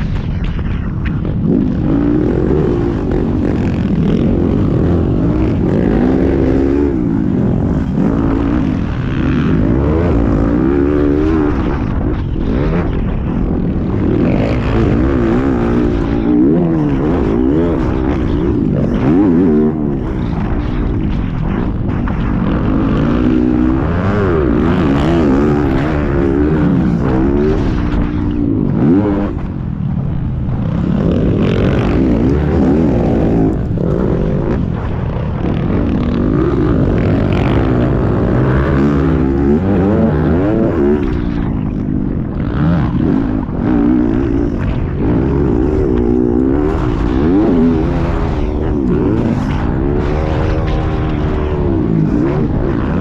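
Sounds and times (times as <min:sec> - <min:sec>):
dirt bike engine revving: 0:00.9 - 0:53.0.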